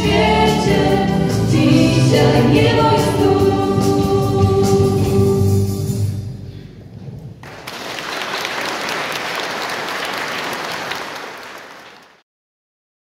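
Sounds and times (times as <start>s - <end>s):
audience applauding: 7.4s - 12.2s.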